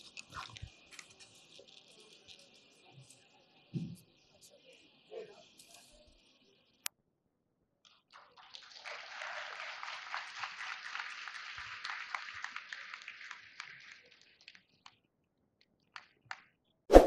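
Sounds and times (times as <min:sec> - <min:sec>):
crowd applause: 0:08.5 - 0:14.5.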